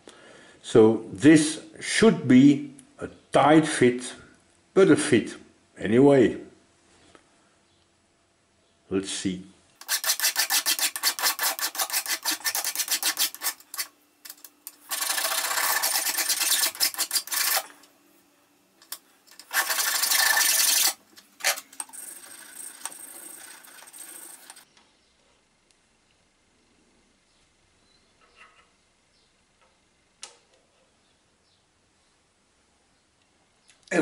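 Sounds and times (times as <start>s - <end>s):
hand file rasping on metal: 9.8s - 17.8s, 19.3s - 21.6s.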